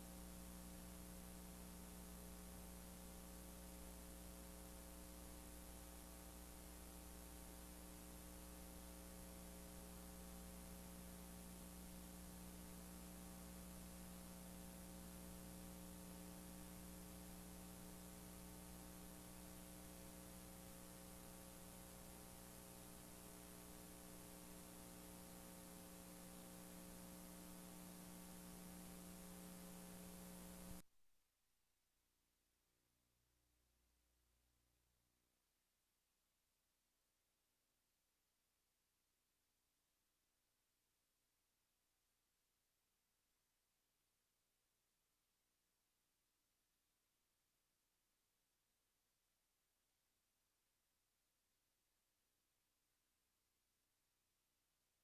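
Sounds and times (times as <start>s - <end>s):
constant hiss: 0.0s - 30.8s
faint mains hum: 0.0s - 30.9s.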